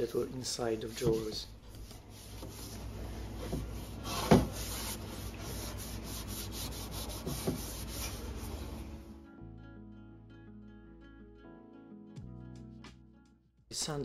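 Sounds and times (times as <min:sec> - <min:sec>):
paintbrush scrubbing wood: 0:00.7 - 0:09.0.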